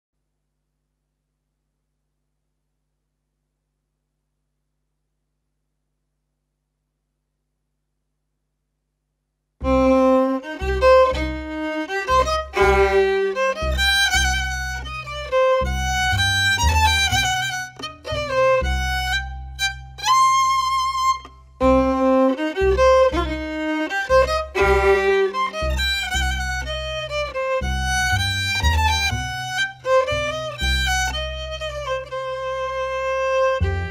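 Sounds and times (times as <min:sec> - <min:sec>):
low sustained bass notes: 0:09.6 - 0:33.9
violin melody: 0:09.6 - 0:33.9.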